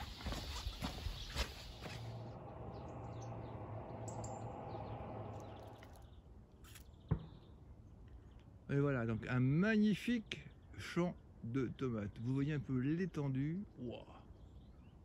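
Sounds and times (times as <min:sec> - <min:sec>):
faint bird chirps: 0:00.0 - 0:09.2
low steady hum: 0:01.5 - 0:06.6.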